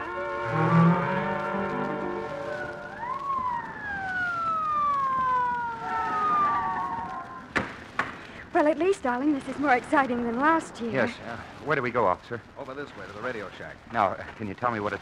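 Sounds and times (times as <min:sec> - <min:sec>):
music: 0:00.0 - 0:03.2
mechanical police siren: 0:00.0 - 0:07.5.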